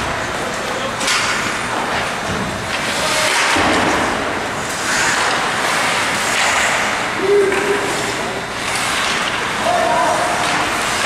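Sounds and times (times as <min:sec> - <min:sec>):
hockey sticks: 0:00.0 - 0:11.0
skates on ice: 0:02.7 - 0:11.0.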